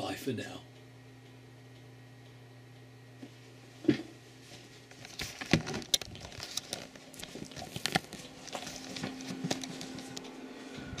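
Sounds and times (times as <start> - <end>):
faint steady hum: 0.0 - 11.0
camera handling knocks and rustles: 5.1 - 6.8.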